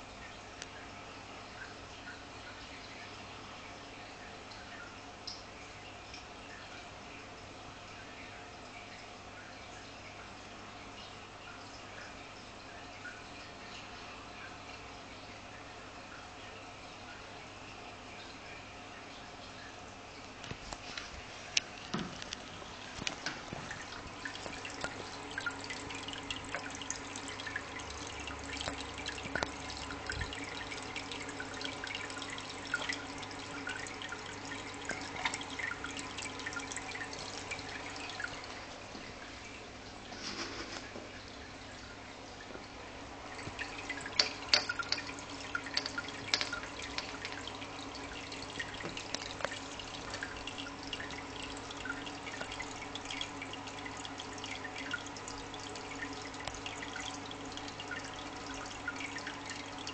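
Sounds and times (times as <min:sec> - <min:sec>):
water dripping into aquarium: 0:00.0 - 0:59.9
steady low hum: 0:22.3 - 0:59.9.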